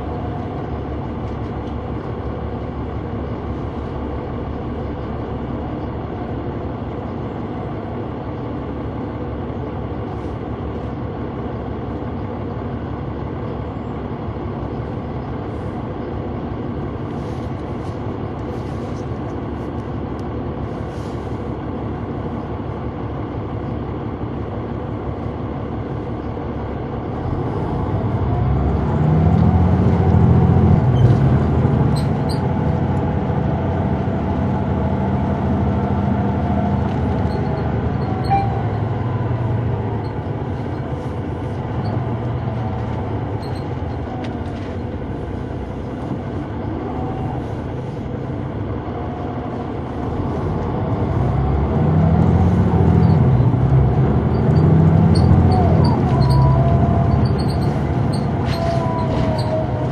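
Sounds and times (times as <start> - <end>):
bus diesel engine revving: 0.0 - 59.9.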